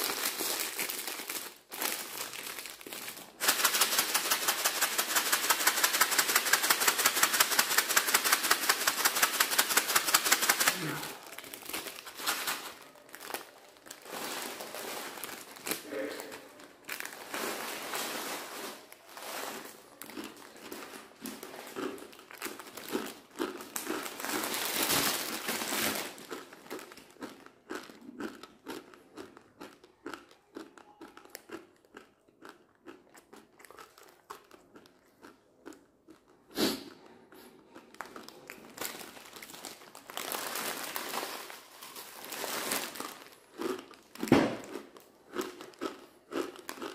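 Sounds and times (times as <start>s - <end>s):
plastic packet crinkling: 0.0s - 28.6s, 37.7s - 46.9s
dry noodles crunching: 0.0s - 46.9s
close-up chewing: 26.2s - 38.8s.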